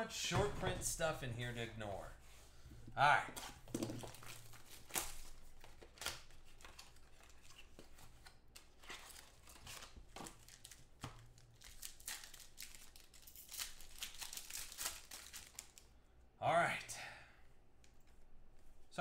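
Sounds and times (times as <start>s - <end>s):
foil wrappers tearing and crinkling: 8.6s - 15.9s.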